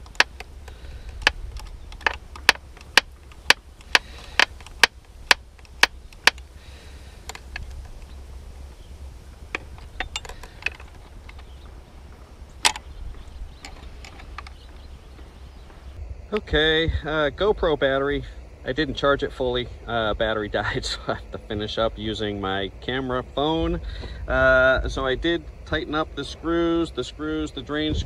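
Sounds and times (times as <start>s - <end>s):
hand tool metallic clicks: 0.0s - 6.5s, 9.5s - 11.6s, 12.6s - 12.9s.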